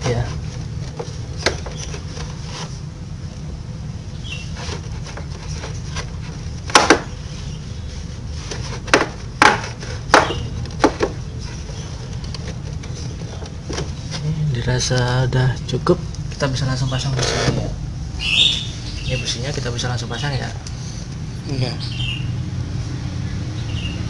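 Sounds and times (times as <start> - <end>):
steady low hum: 0.0 - 24.0
knocks on plastic bodywork: 6.7 - 7.1, 8.8 - 11.2.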